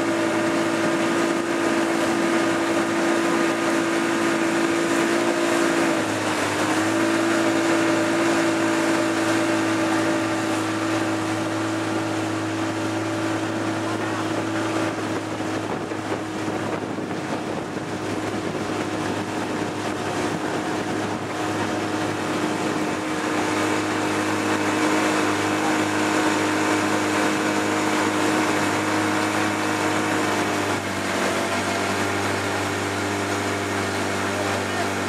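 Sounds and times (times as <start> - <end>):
motorboat engine humming: 0.0 - 35.0
wind noise on microphone: 13.5 - 23.2.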